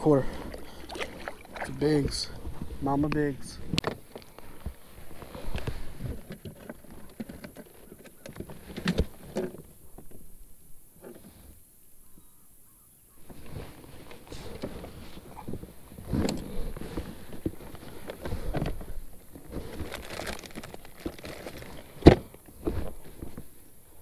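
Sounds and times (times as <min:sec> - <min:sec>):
rummaging in plastic tackle box: 0:03.6 - 0:10.2, 0:13.3 - 0:23.6.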